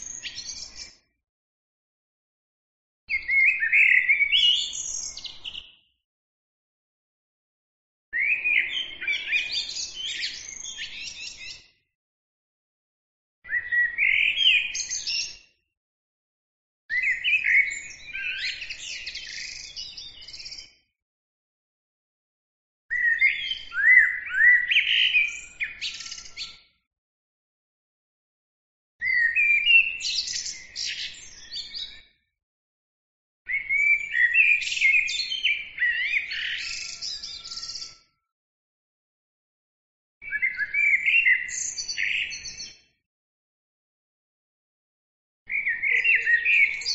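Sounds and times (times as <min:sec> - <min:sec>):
blackbird singing: 0:00.0 - 0:01.0, 0:03.1 - 0:05.9, 0:08.2 - 0:11.7, 0:13.5 - 0:15.4, 0:16.9 - 0:20.8, 0:22.9 - 0:26.7, 0:29.0 - 0:32.1, 0:33.5 - 0:38.0, 0:40.2 - 0:42.8, 0:45.5 - 0:46.9.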